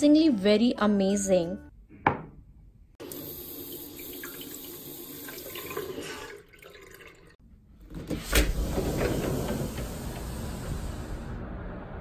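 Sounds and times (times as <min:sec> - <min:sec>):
faucet running into sink: 0:03.0 - 0:07.4
sliding glass door clack: 0:07.9 - 0:11.0.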